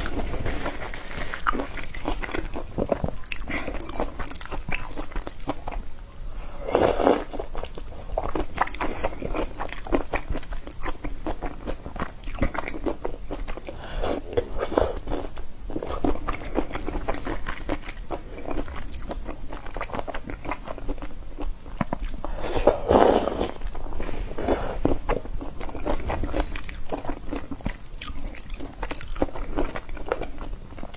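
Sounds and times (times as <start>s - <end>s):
chewing: 0.0s - 5.8s, 6.8s - 30.9s
crunching of shrimp shells: 24.5s - 30.9s.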